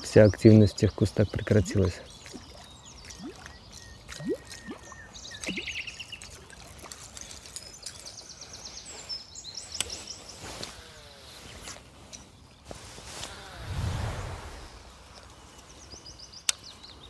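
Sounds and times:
songbirds singing: 0.0s - 17.0s
lure splashing on water: 1.6s - 8.0s.

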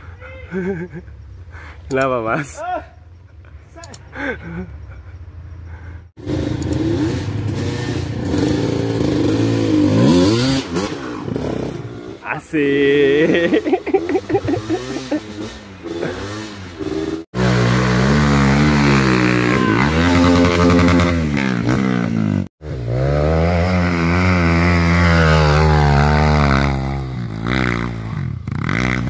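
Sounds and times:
dirt bike engine revving: 6.2s - 29.0s.

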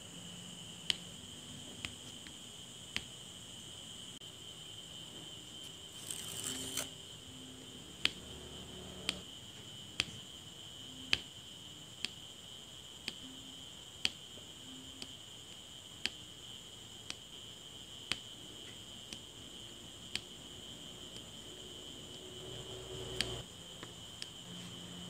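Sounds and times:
high-pitched whine: 5.1s - 9.3s.

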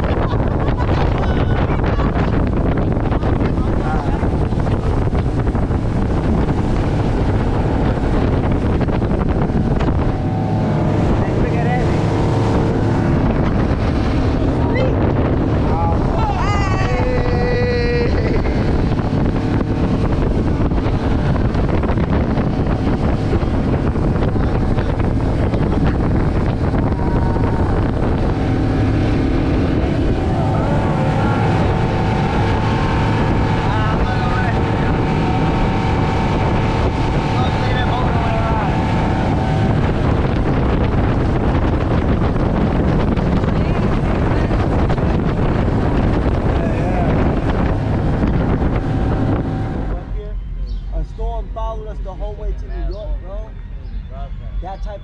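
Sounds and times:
water rushing past hull: 0.0s - 52.0s
motorboat running fast: 0.0s - 55.0s
wind buffeting microphone: 0.0s - 55.0s.

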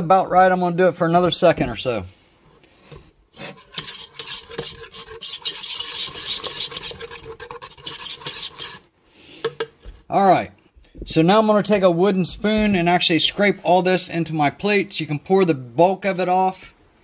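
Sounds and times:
whisk scraping a pot: 2.4s - 10.2s.

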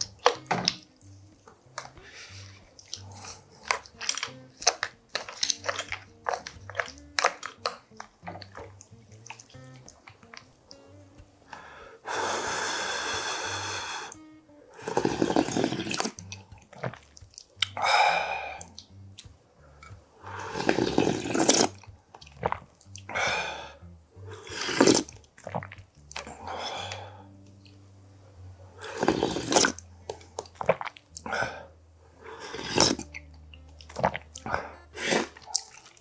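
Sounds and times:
slurping broth: 0.0s - 27.4s, 28.6s - 36.0s
person sighing ah: 11.5s - 14.2s, 17.8s - 18.7s, 23.1s - 23.8s, 26.3s - 27.3s.

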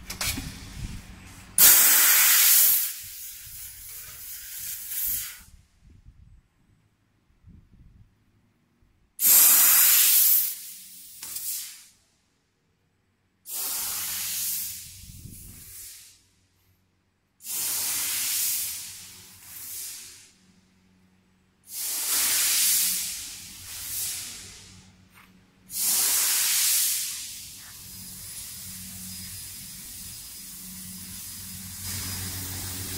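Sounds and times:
assist gas hissing bursts: 1.6s - 5.6s, 9.2s - 12.0s, 13.5s - 16.2s, 17.4s - 20.5s, 21.6s - 25.0s, 25.6s - 32.9s
low hum: 27.5s - 32.9s.

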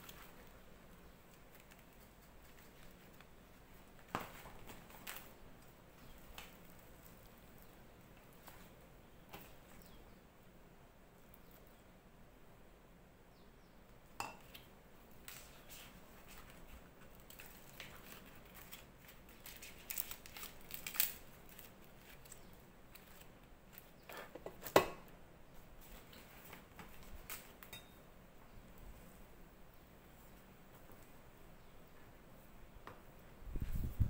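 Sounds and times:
leaves being folded: 0.0s - 10.1s, 14.4s - 24.8s, 25.6s - 27.8s.

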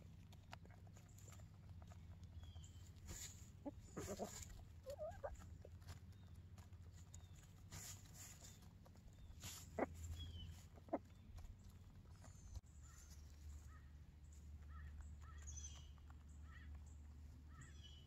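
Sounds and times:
straw rustling: 0.0s - 17.5s
chickens pecking clicks: 0.0s - 18.0s
short sharp chicken calls: 9.4s - 11.0s.

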